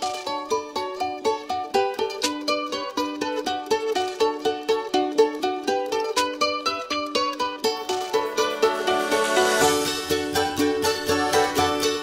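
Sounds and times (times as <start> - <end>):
plucked-string instrument tune: 0.0 - 12.0
bass line: 8.0 - 12.0.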